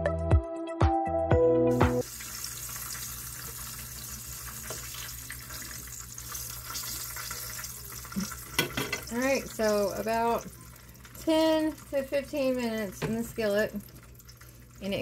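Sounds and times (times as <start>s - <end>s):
electronic background music: 0.0s - 2.0s
chicken sizzling in oil: 1.8s - 15.0s.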